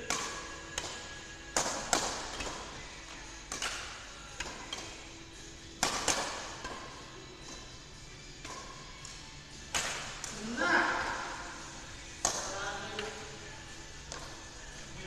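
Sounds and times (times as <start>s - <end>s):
rackets striking shuttlecock: 0.0s - 14.6s.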